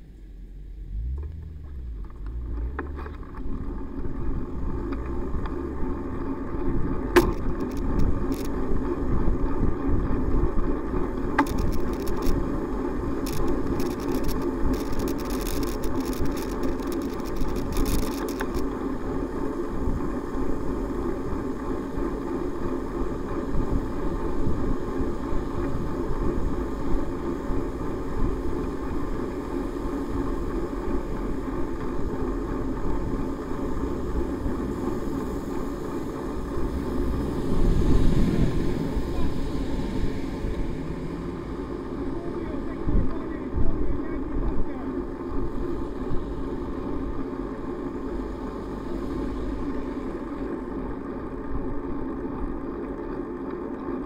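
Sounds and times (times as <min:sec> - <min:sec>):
truck following: 0:00.0 - 0:53.8
road and wind rumble: 0:00.0 - 0:54.0
tyres on wet road: 0:00.0 - 0:54.0
sharp clicks and rattles: 0:01.1 - 0:08.8, 0:11.0 - 0:12.5, 0:13.1 - 0:18.8.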